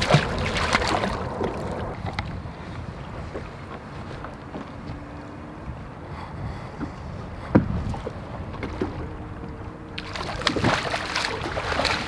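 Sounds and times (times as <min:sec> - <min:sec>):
fish thrashing and splashing: 0:00.0 - 0:01.7, 0:10.0 - 0:12.0
water lapping against boat hull: 0:00.0 - 0:12.0
wind on microphone: 0:00.0 - 0:12.0.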